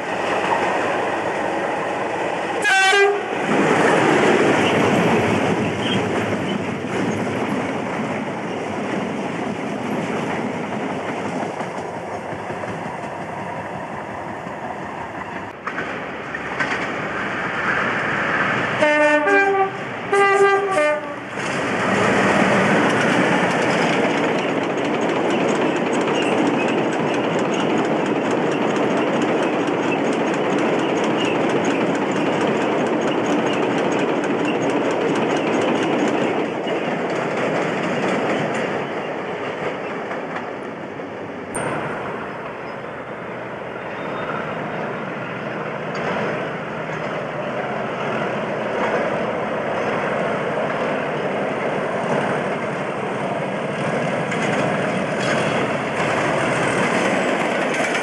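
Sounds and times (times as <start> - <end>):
diesel locomotive engine: 0.0 - 58.0
wheels clattering over rail joints: 21.4 - 40.8, 54.0 - 58.0.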